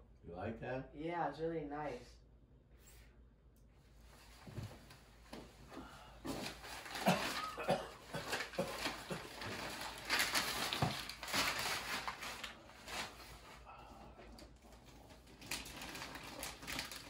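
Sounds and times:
wrapping paper tearing and rustling: 0:06.3 - 0:13.7, 0:14.3 - 0:17.0.

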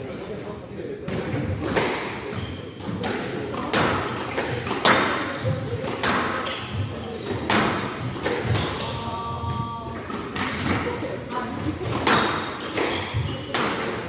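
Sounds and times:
squash ball hits: 0:01.1 - 0:10.9, 0:11.6 - 0:14.0.

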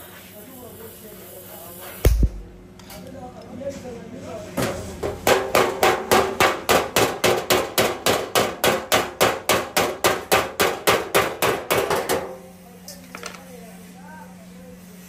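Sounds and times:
hammer beating sheet metal: 0:02.1 - 0:02.7, 0:05.0 - 0:12.4.

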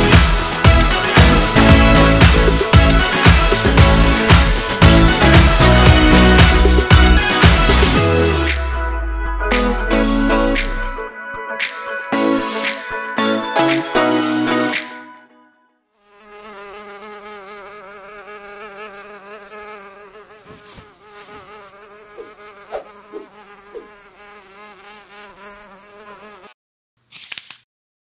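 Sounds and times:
music track: 0:00.0 - 0:15.4
drone propellers buzzing: 0:18.0 - 0:24.0.

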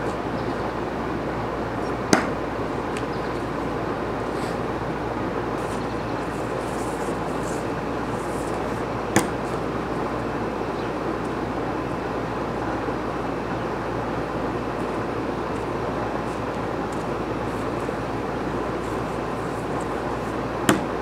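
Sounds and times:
steady rushing background noise: 0:00.0 - 0:21.0.

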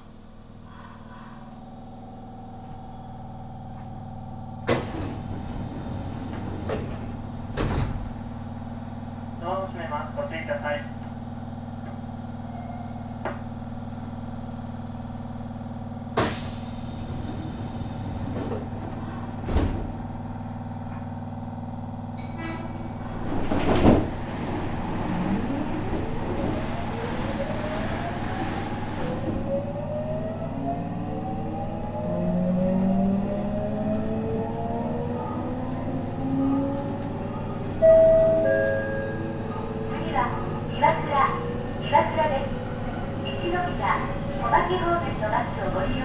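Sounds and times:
brief high tone: 0:37.8 - 0:39.4.

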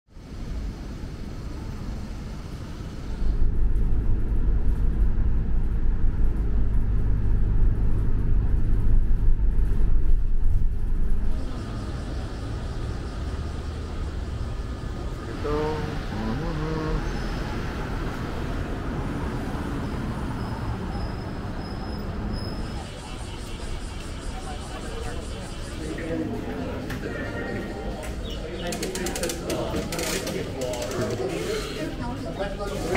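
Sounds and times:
traffic hum: 0:00.2 - 0:32.9
heavy low rumble: 0:00.3 - 0:19.2
people's voices: 0:11.3 - 0:19.6, 0:20.9 - 0:32.9.

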